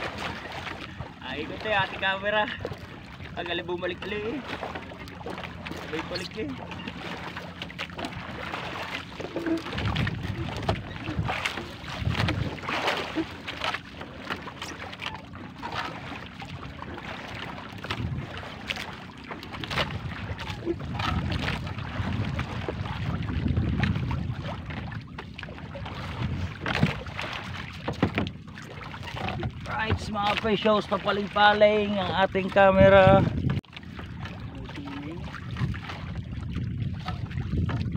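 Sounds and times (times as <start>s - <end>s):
wind rumbling on microphone: 0.0s - 13.4s, 15.6s - 37.9s
water lapping against canoe: 0.0s - 37.9s
fishing net knocks and rustles: 27.9s - 28.4s.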